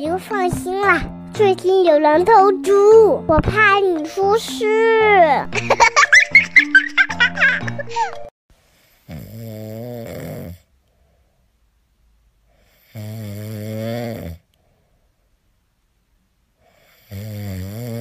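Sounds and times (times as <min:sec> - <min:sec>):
dog snoring: 0:09.0 - 0:10.7, 0:12.7 - 0:14.4, 0:16.7 - 0:18.0.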